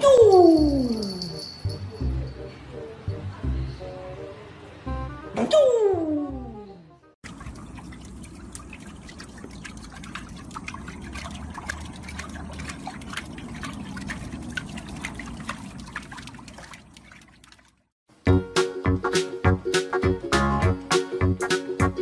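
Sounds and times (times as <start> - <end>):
water splashing and trickling: 7.2 - 18.0.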